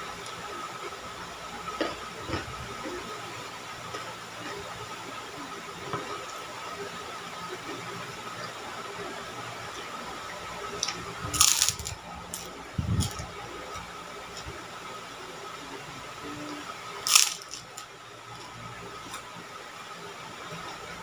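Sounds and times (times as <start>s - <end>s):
background hum and hiss: 0.0s - 21.0s
cracker crunching: 10.8s - 13.3s, 17.1s - 17.8s.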